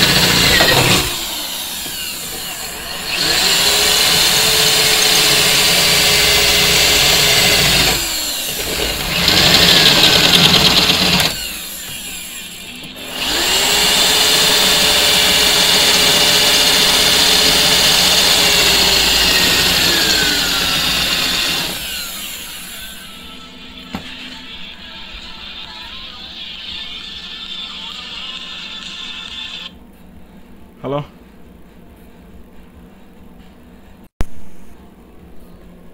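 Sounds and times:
electric drill drilling into steel: 0.0 - 23.4.

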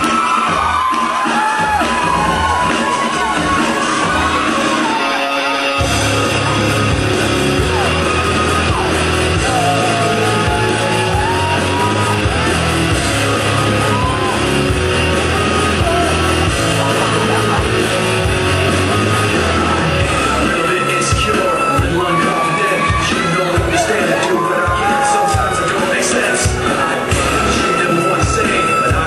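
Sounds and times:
loud rock music: 0.0 - 29.0
heavy pulsing bass: 1.5 - 5.1, 5.8 - 29.0
person singing: 15.1 - 29.0.

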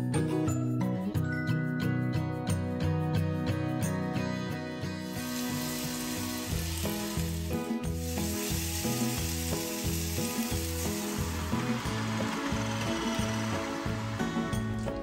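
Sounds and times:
background music: 0.0 - 15.0
fish sizzling in hot oil: 5.0 - 12.0.

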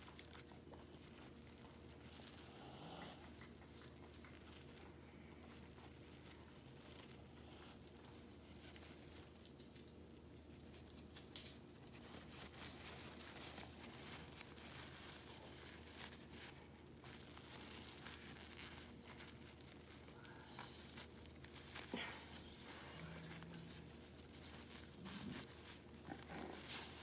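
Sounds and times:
paper tissue rustling: 0.0 - 3.0, 3.7 - 27.0.

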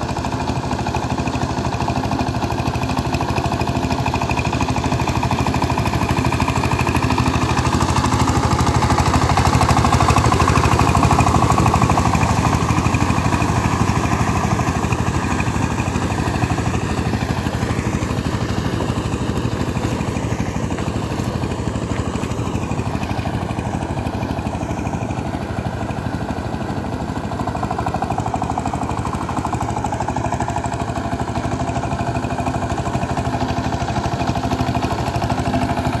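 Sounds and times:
diesel tiller engine running: 0.0 - 36.0.

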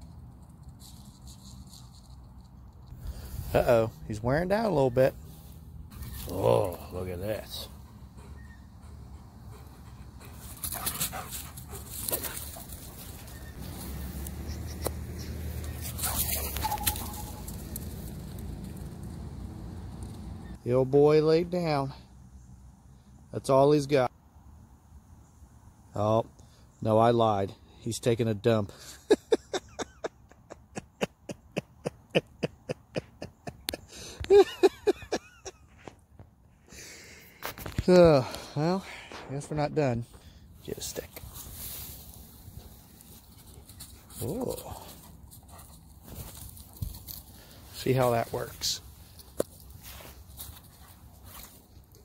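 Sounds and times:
rustling in dry leaves: 5.2 - 7.0, 10.4 - 18.8, 40.6 - 52.0
man laughing breathily: 28.7 - 35.8.

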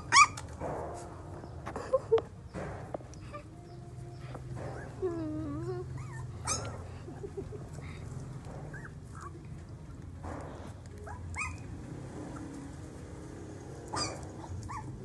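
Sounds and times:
puppies whining and yelping: 0.0 - 0.5, 3.2 - 8.0, 8.6 - 9.7, 10.9 - 12.6, 13.9 - 15.0.

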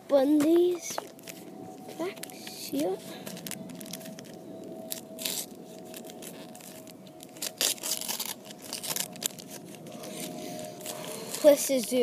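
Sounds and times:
wrapper tearing and crinkling: 2.1 - 12.0.

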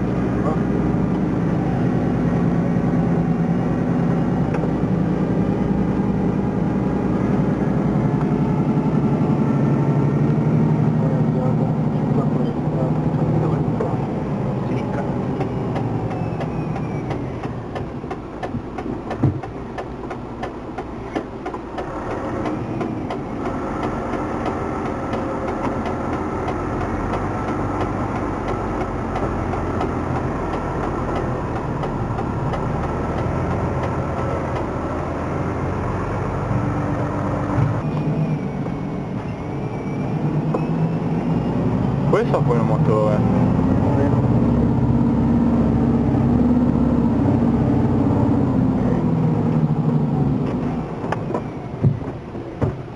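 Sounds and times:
truck diesel engine under load: 0.0 - 52.9
sharp knocks: 15.4 - 34.7.

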